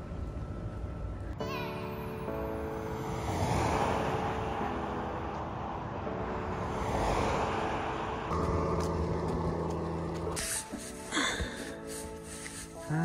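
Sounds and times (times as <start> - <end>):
car tyres rushing on road: 2.7 - 11.0.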